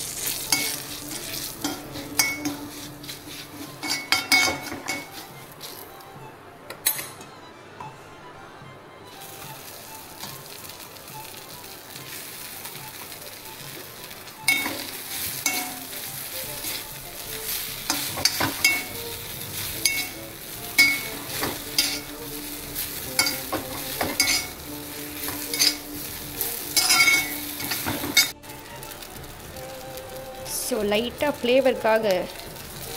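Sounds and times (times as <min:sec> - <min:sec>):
spoon scraping a pan: 0:00.0 - 0:05.9, 0:14.5 - 0:28.4
food sizzling in oil: 0:00.0 - 0:06.0, 0:09.1 - 0:32.9.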